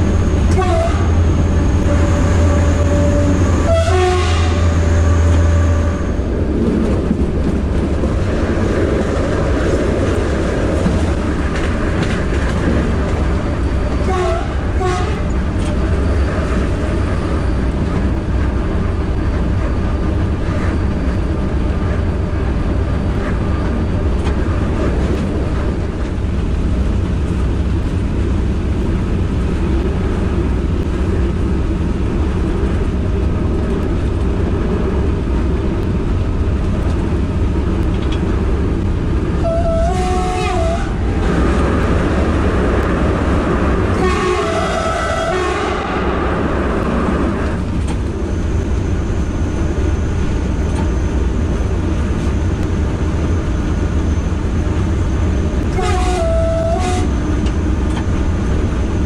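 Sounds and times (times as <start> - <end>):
diesel locomotive engine running: 0.0 - 59.0
wheel and rail rumble: 0.0 - 59.0.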